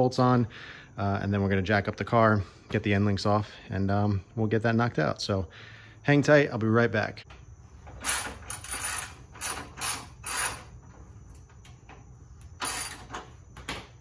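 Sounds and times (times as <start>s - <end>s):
ratchet wrench clicking: 8.0s - 10.7s, 12.5s - 13.1s.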